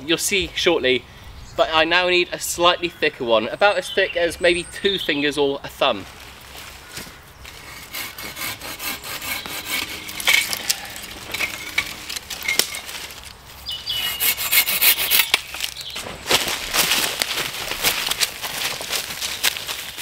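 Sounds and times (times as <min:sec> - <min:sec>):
hand saw cutting wood: 0:07.5 - 0:15.6.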